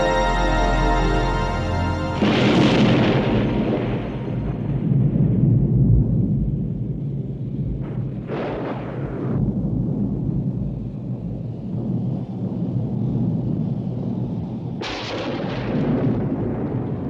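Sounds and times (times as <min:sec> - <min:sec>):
sharp thunder crack: 0:00.0 - 0:07.0, 0:07.6 - 0:10.6, 0:14.8 - 0:17.0
rolling thunder rumble: 0:00.3 - 0:17.0.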